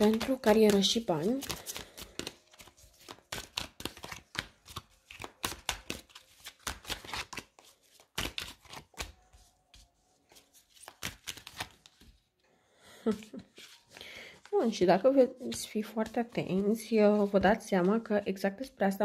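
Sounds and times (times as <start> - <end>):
cards being shuffled by hand: 0.0 - 12.2, 13.0 - 14.6.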